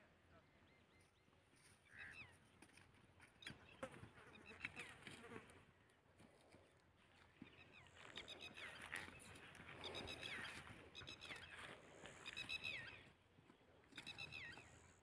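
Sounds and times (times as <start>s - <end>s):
faint bird calls: 0.2s - 2.6s, 7.3s - 13.2s, 13.9s - 15.0s.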